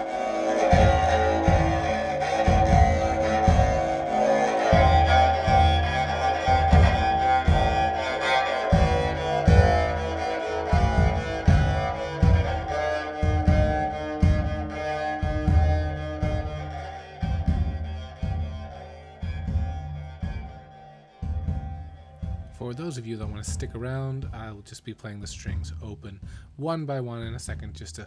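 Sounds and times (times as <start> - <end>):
bowed string instrument tune: 0.0 - 22.8
frame drum thumps: 0.1 - 18.6.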